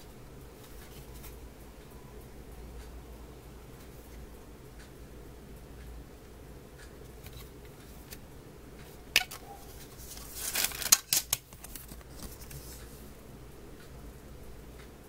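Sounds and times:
plastic case clicking: 9.2 - 9.4.

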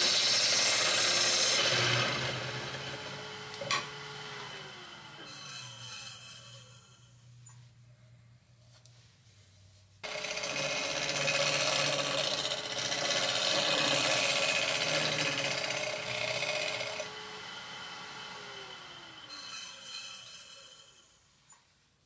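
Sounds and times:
lathe motor hum: 0.0 - 5.3, 10.0 - 20.6
sandpaper rasping on spinning wood: 10.0 - 17.0.

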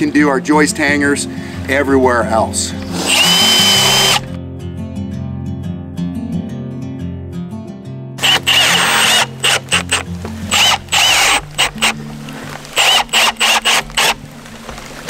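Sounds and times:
background music: 0.0 - 15.0
cordless drill driving screws: 2.9 - 4.3, 8.2 - 12.0, 12.7 - 14.2.

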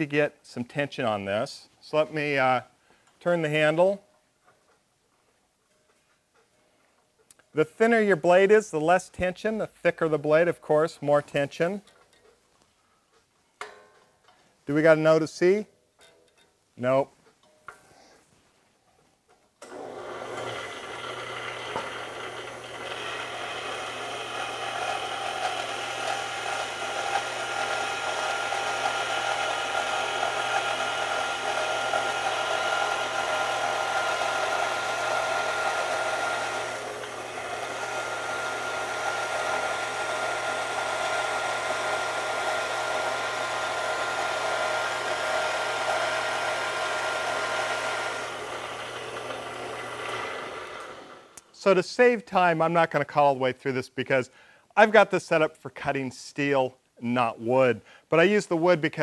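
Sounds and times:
bandsaw running: 19.6 - 51.4
saw blade cutting wood: 19.7 - 51.2.

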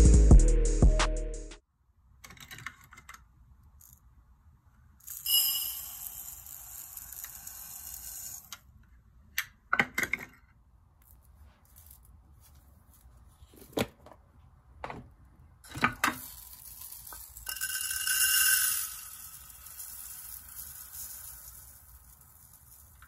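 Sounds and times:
rice pouring into a glass bowl: 5.1 - 8.5, 16.1 - 23.0.

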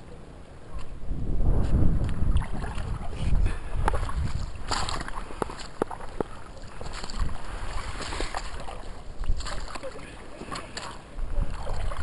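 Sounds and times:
wind rumbling on microphone: 0.6 - 12.0
footsteps crunching through dry brush: 4.0 - 9.9.

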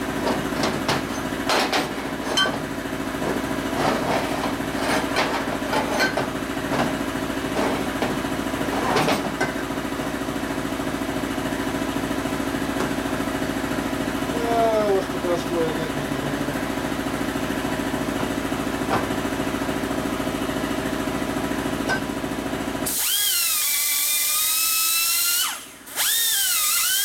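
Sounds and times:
shop machinery humming: 0.0 - 27.0
metal clanks in a bench vise: 0.6 - 2.6, 3.8 - 6.8.

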